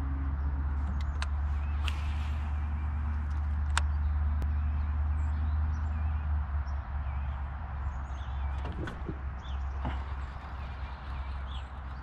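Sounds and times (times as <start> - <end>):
sharp clicks: 0.8 - 2.2, 3.1 - 4.0.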